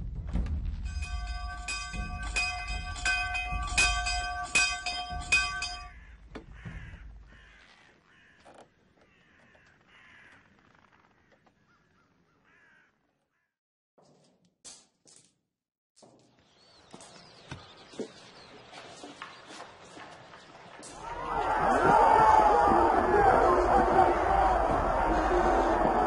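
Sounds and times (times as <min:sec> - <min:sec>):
ringing bell tones: 0:00.8 - 0:06.0
crows cawing: 0:05.9 - 0:13.5.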